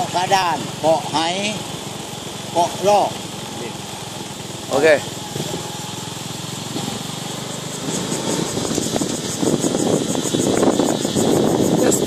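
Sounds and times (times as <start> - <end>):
small engine running: 0.0 - 12.0
high-pitched pulsing: 4.7 - 12.0.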